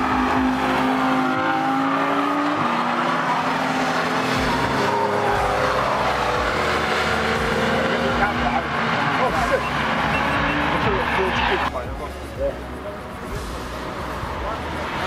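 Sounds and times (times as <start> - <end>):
race cars passing at high revs: 0.0 - 15.0.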